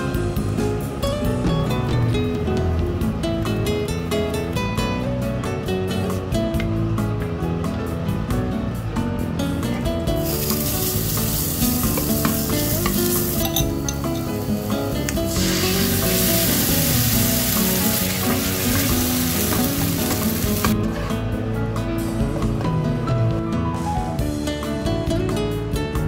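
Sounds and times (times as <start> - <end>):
background music: 0.0 - 26.0
food sizzling in hot oil: 10.2 - 20.8.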